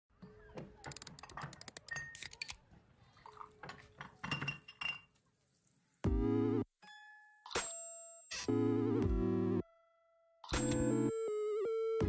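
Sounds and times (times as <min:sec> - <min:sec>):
liquid pouring: 0:03.1 - 0:04.2
glass clinks: 0:04.2 - 0:05.1.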